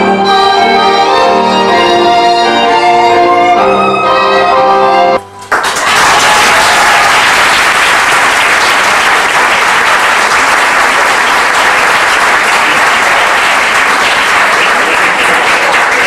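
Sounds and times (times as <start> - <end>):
audience clapping: 5.4 - 16.0.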